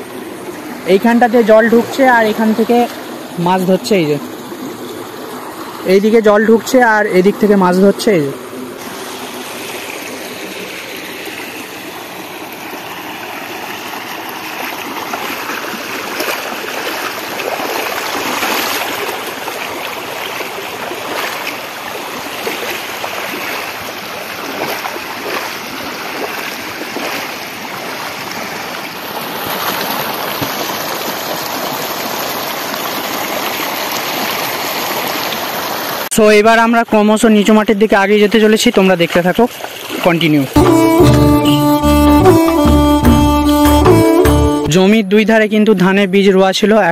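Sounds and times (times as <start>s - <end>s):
floodwater rushing: 0.0s - 36.1s.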